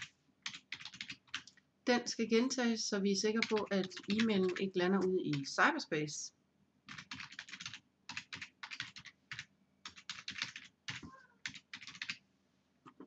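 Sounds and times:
typing on computer keyboard: 0.0s - 1.6s, 3.4s - 5.4s, 6.9s - 12.2s.

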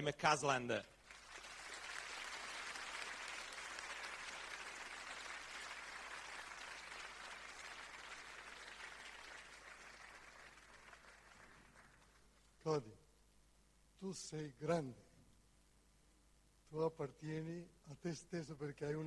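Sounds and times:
audience applauding: 1.0s - 12.4s.

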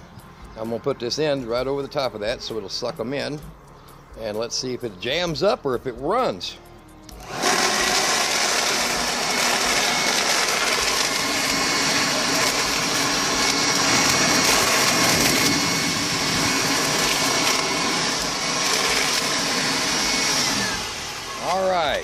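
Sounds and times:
blower vacuum whining: 7.1s - 22.0s
styrofoam being shredded: 7.2s - 20.9s.

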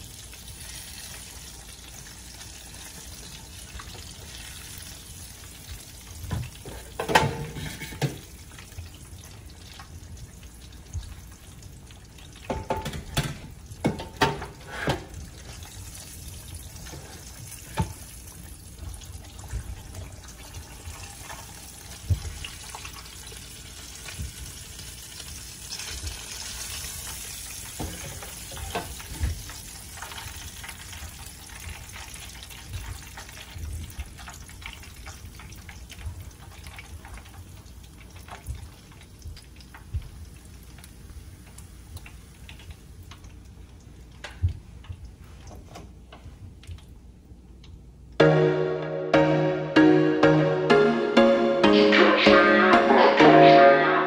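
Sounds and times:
kitchen knocks and clatters: 6.2s - 8.4s, 12.4s - 15.6s, 27.7s - 29.5s.

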